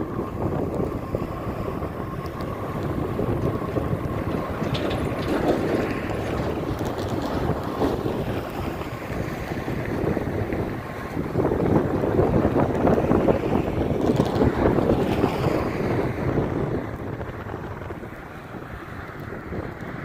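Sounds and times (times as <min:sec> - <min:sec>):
distant freight train rumble: 0:00.0 - 0:20.0
wind buffeting microphone: 0:00.0 - 0:20.0.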